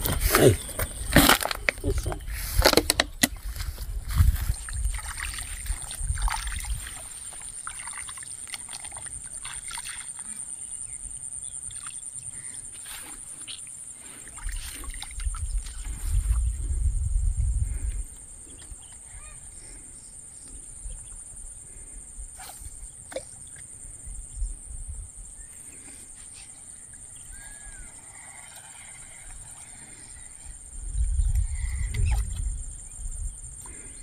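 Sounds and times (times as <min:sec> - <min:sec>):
wading through water: 0:00.0 - 0:16.7.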